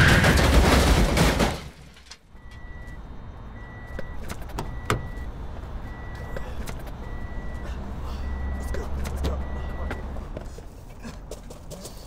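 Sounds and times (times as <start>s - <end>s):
car crash: 0.0s - 2.3s
car warning chime beeping: 2.3s - 10.3s.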